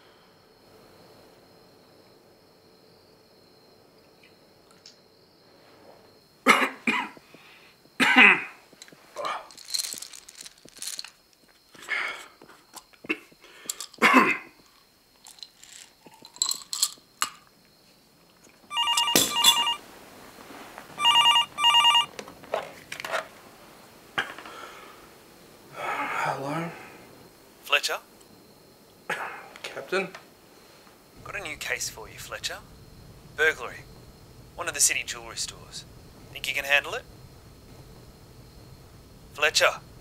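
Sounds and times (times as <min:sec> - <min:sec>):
landline telephone ringing: 0:18.7 - 0:19.8, 0:21.0 - 0:22.1.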